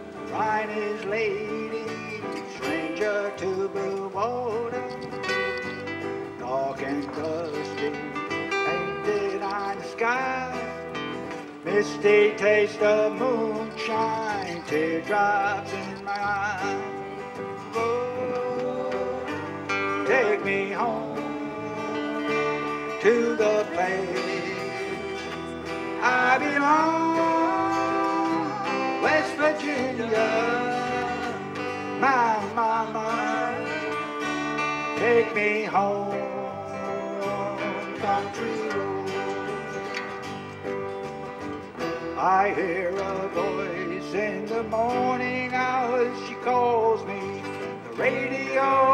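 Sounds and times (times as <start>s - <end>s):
bass guitar: 0.0s - 48.9s
electric guitar: 0.0s - 48.9s
strummed acoustic guitars: 0.0s - 48.9s.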